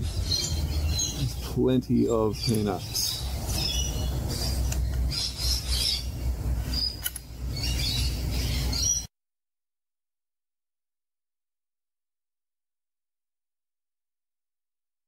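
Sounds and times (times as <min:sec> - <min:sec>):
low steady rumble: 0:00.0 - 0:08.8
parrots chattering: 0:00.0 - 0:09.0.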